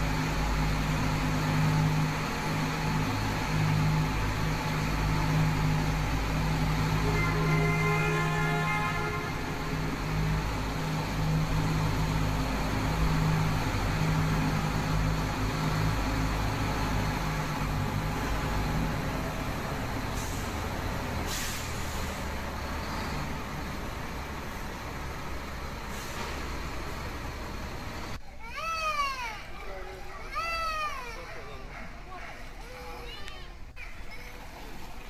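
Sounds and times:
engine hum and rumble: 0.0s - 28.2s
short hisses: 21.2s - 22.2s, 25.9s - 26.5s.

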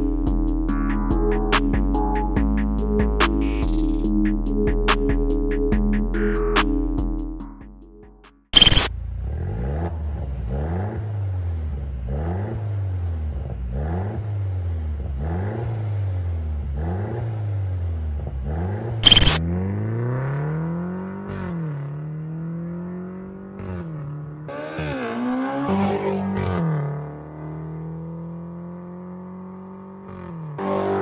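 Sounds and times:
car engine revving: 8.6s - 31.0s.

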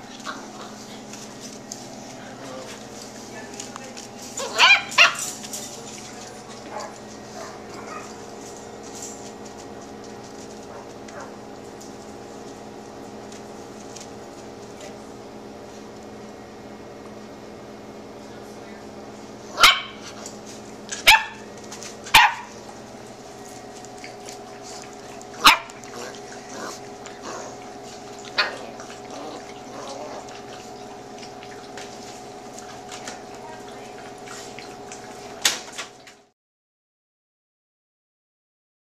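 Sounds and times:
steady low hum: 0.0s - 36.3s
puppies barking: 4.3s - 8.5s, 10.6s - 11.5s, 19.5s - 35.6s.

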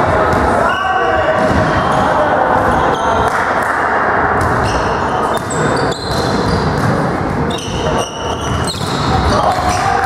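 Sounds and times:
echoing hall background din: 0.0s - 10.0s
sneakers squeaking on wooden floor: 4.4s - 10.0s.

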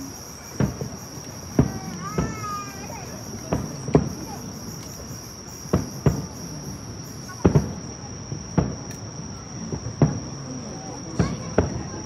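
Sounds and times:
distant fireworks booming: 0.0s - 12.0s
insects trilling: 0.0s - 12.0s.

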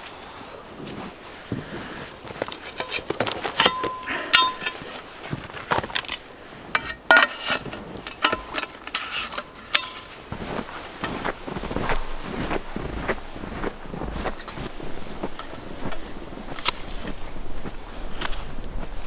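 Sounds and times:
gear rustling: 0.9s - 19.0s
shovel parts clicking and clinking: 2.3s - 10.2s.

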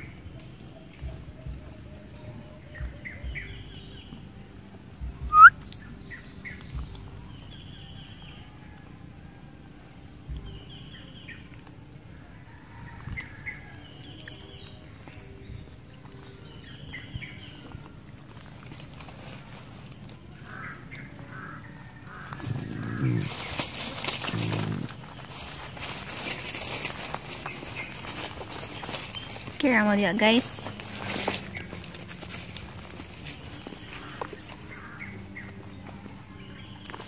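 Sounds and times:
birds chirping: 0.0s - 8.6s, 9.9s - 37.0s
rising bird squeak: 5.3s - 5.5s.

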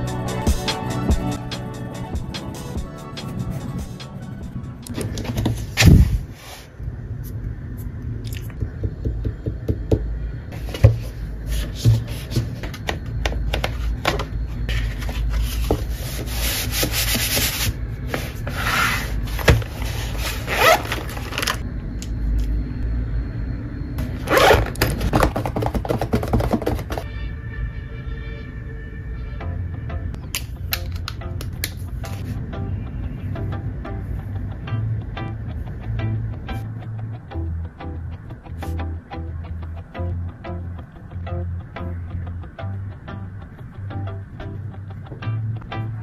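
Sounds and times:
hands rubbing paper pages: 14.7s - 21.6s.

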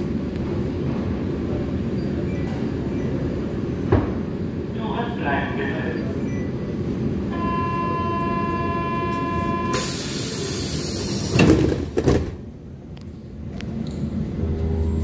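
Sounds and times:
sharp air hiss: 9.7s - 11.4s
sliding doors thudding shut: 11.2s - 12.4s.

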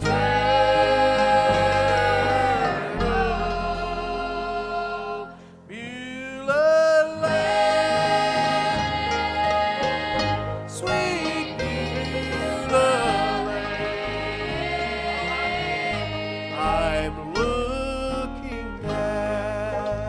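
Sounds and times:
instrumental accompaniment: 0.0s - 5.7s, 7.2s - 20.0s
person singing gospel song: 0.0s - 20.0s.

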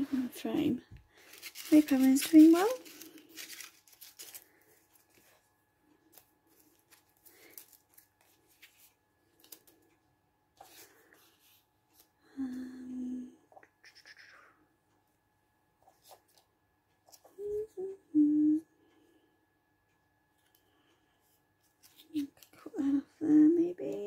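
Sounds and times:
paper rustling: 1.2s - 5.4s, 6.1s - 9.8s, 21.6s - 22.6s.

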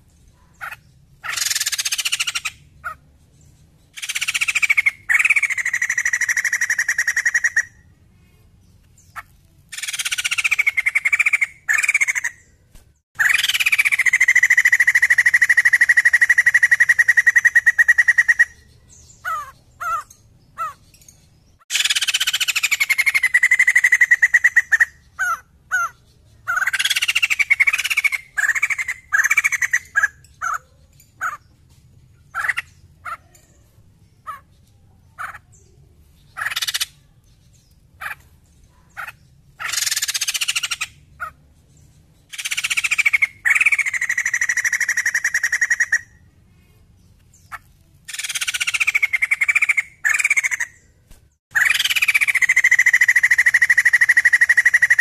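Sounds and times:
bird buzzy sliding calls: 9.1s - 12.4s, 47.5s - 55.0s.

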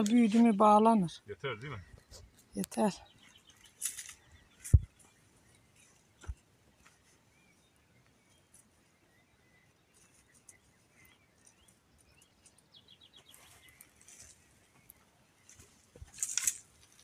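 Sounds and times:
faint bird chirping: 0.0s - 17.0s.

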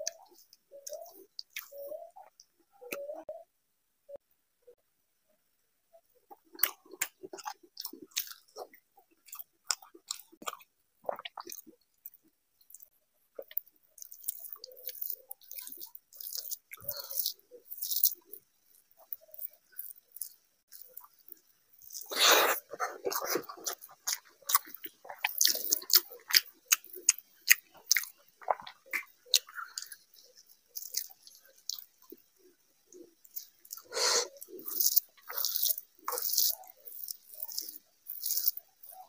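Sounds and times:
chewing with lip smacks: 0.0s - 3.2s, 6.3s - 39.0s
fingers mixing rice on plate: 32.9s - 39.0s.

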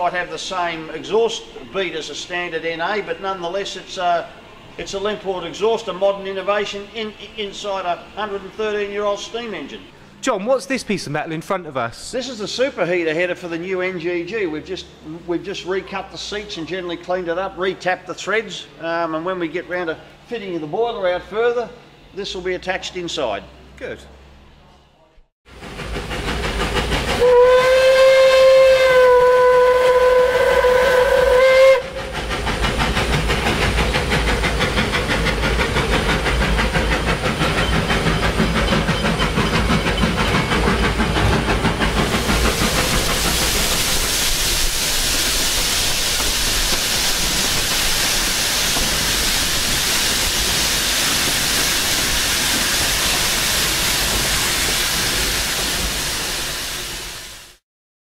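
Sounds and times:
train clattering and steam hissing: 0.0s - 23.1s, 25.5s - 57.6s
steam locomotive whistle blast: 27.1s - 32.2s.

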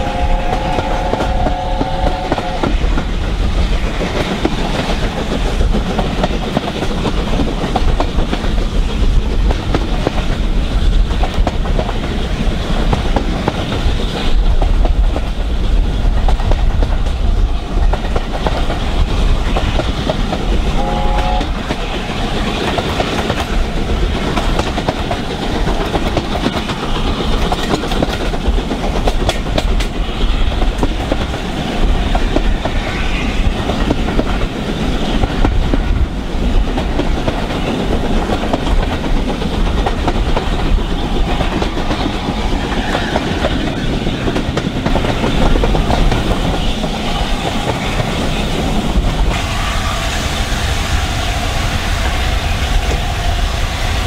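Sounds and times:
steam whistle: 0.0s - 2.6s, 20.8s - 21.5s, 49.3s - 52.7s
train wheels clacking over rail joints: 0.0s - 49.5s
steam locomotive exhaust: 0.0s - 54.0s.

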